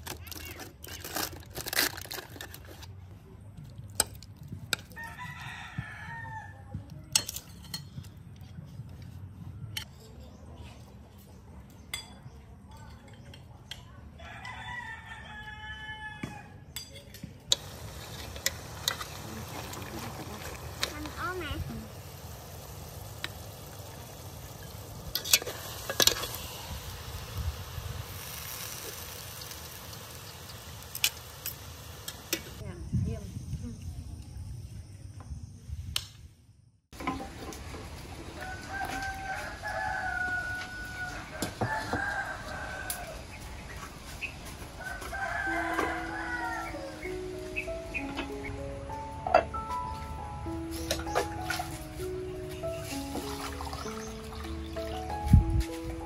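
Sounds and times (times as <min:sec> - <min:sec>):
rooster crowing: 0:04.9 - 0:06.7, 0:14.2 - 0:16.6, 0:38.3 - 0:43.4, 0:44.8 - 0:47.0
spoons clinking on plates: 0:07.2 - 0:08.1.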